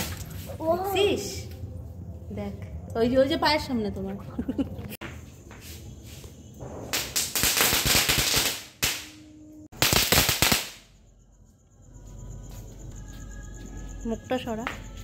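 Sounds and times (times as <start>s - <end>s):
firework fountain crackling hiss: 6.9s - 9.1s, 9.8s - 10.8s.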